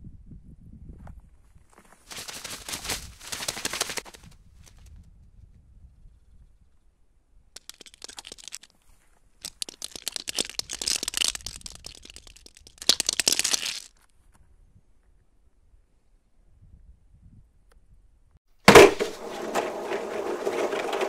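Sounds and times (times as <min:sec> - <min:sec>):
dry crunching and crackling: 0:01.8 - 0:04.8, 0:07.6 - 0:08.7, 0:09.4 - 0:14.0.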